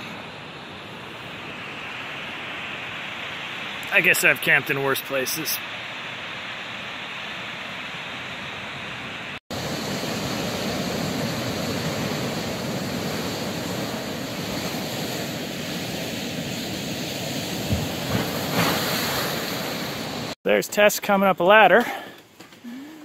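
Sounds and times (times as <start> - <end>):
waves breaking on rocks: 9.6 - 20.4.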